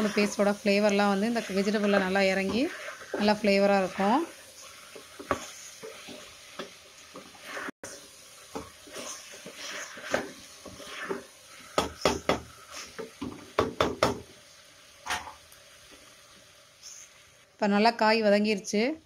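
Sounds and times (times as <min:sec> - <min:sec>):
spatula scraping a metal pot: 0:00.0 - 0:13.1.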